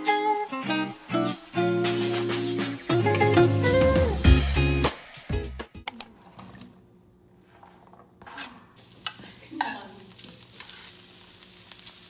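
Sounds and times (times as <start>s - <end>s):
frying sizzle: 0.0s - 5.8s, 8.8s - 12.0s.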